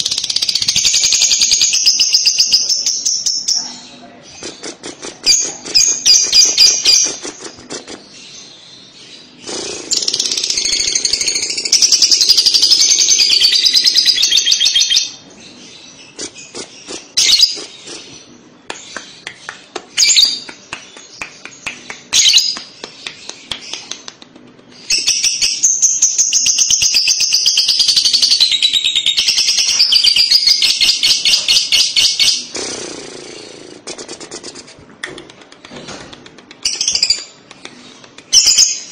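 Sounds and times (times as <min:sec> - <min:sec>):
bird chirps and clicks: 0:18.6 - 0:25.6, 0:34.0 - 0:38.9.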